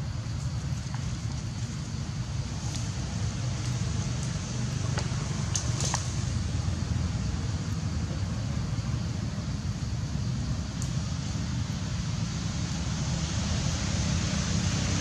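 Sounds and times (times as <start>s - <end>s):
outdoor background rumble: 0.0s - 15.0s
faint high ticks: 10.7s - 11.0s.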